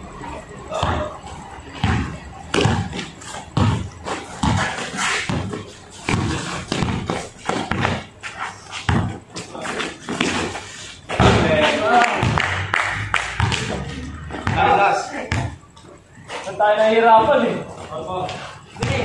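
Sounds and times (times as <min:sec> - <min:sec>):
players calling out: 0:00.0 - 0:19.0
basketball bouncing on concrete: 0:00.7 - 0:01.2, 0:01.8 - 0:08.1, 0:08.8 - 0:10.5, 0:11.1 - 0:12.6, 0:13.4 - 0:15.6, 0:18.8 - 0:19.0
shoes squeaking on court: 0:00.7 - 0:12.3, 0:13.4 - 0:19.0.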